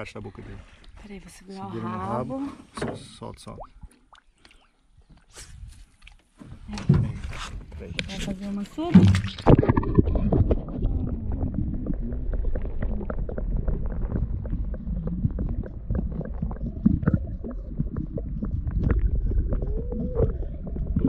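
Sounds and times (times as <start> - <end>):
muffled underwater rumble: 9.0 - 21.0.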